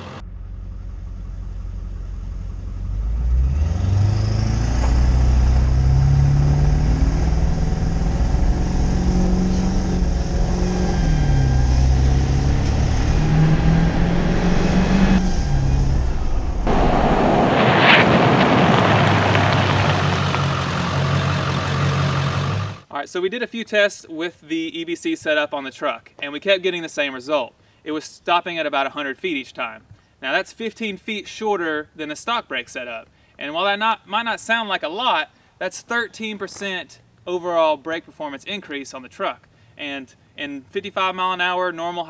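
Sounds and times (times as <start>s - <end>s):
diesel truck engine accelerating: 0.0s - 22.9s
tyres and wind rushing: 3.2s - 22.9s
high squeal: 6.0s - 22.2s.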